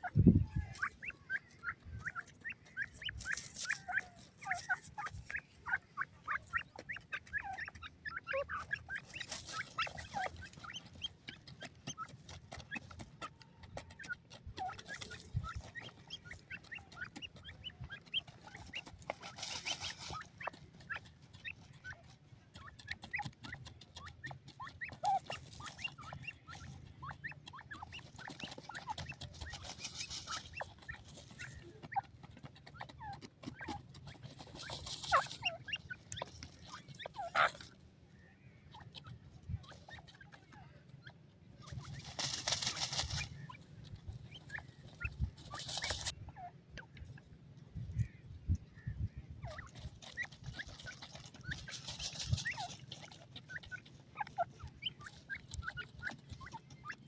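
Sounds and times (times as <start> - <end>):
birds chirping: 0.0 - 57.0
birds scratching in dry soil: 0.0 - 57.0.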